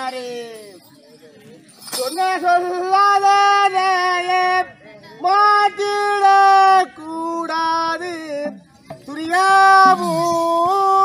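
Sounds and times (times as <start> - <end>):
high voice singing held notes: 9.7 - 10.8.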